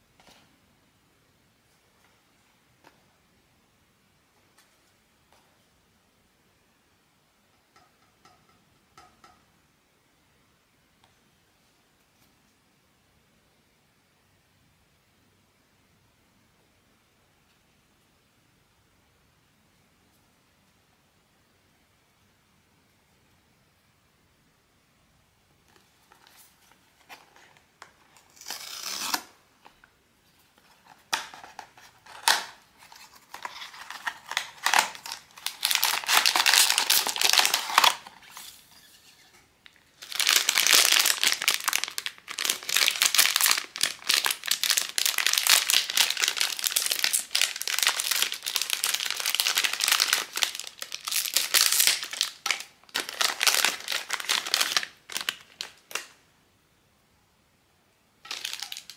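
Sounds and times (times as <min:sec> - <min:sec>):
packaging tearing and crinkling: 0:28.1 - 0:29.3, 0:30.8 - 0:38.6, 0:40.0 - 0:56.1, 0:58.2 - 0:58.9.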